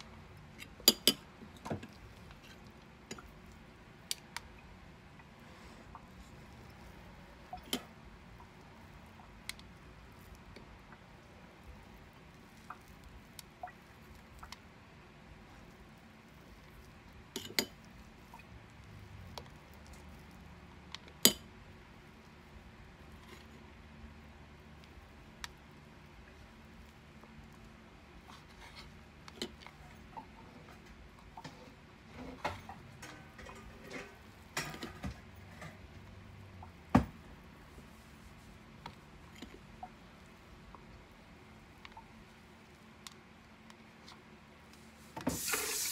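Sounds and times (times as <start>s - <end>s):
room hum: 0.0s - 45.9s
sticky squishes of hands: 5.2s - 23.7s.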